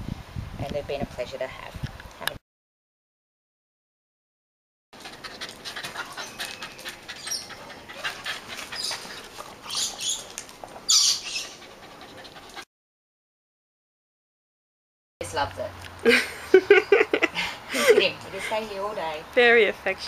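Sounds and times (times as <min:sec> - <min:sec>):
dogs making excited sounds: 0:05.0 - 0:12.7.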